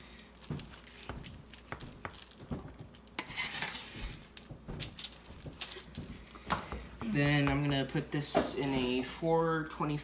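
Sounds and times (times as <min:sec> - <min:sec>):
parchment paper crinkling: 0:00.0 - 0:06.4.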